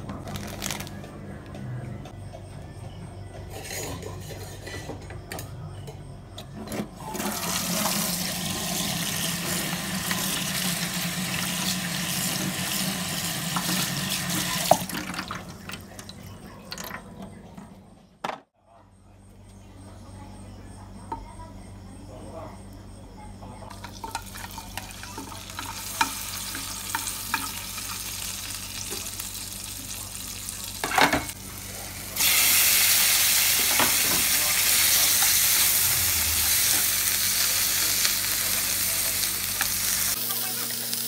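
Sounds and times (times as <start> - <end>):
tap water running into metal sink: 7.1 - 17.0.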